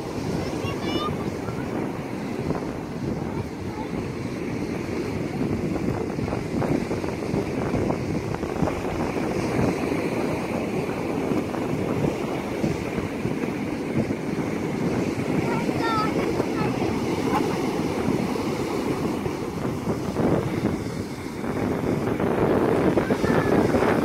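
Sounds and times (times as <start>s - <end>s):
ocean surf breaking: 0.0s - 24.0s
wind buffeting microphone: 0.0s - 24.0s.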